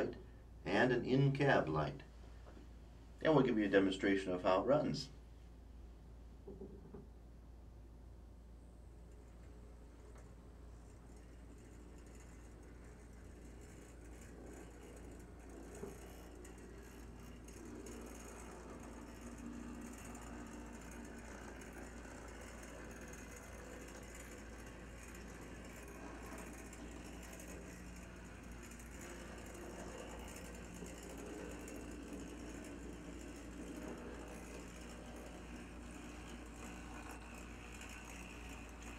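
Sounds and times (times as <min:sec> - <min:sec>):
model train motor whir: 0:08.9 - 0:38.9
wheels rattling on rails: 0:09.9 - 0:38.9.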